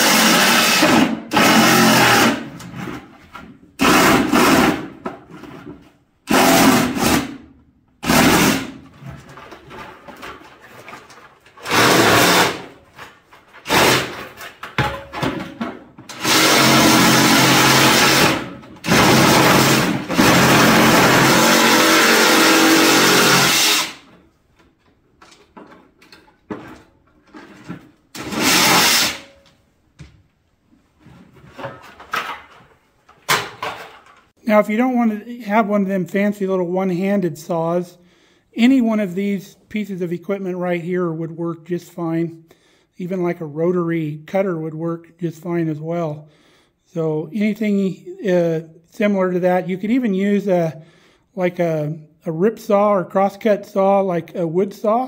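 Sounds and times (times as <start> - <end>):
reciprocating saw cutting plastic: 0.0 - 2.5, 3.8 - 4.9, 6.3 - 7.4, 8.0 - 8.8, 11.6 - 12.8, 13.6 - 14.3, 16.1 - 24.1, 28.2 - 29.3.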